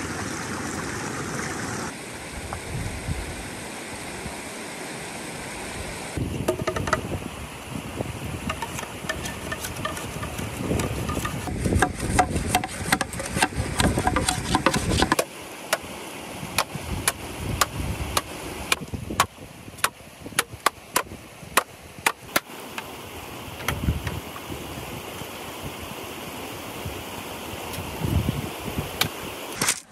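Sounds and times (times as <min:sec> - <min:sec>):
machete striking bamboo: 0:08.5 - 0:15.9, 0:16.6 - 0:22.5.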